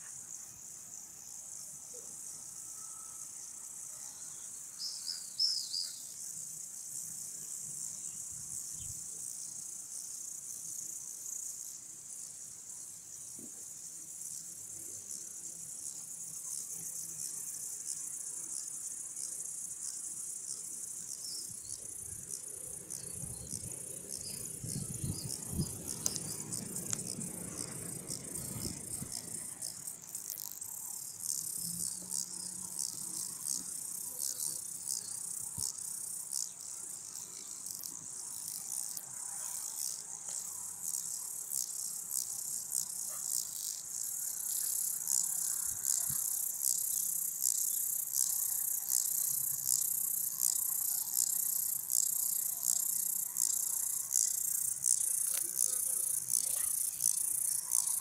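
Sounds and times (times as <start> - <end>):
insects chirring: 0.0 - 58.0.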